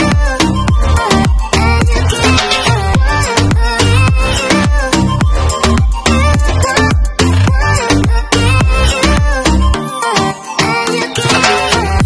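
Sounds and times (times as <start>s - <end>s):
background music with steady beat: 0.0s - 12.0s
deep kick drum: 3.0s - 9.4s.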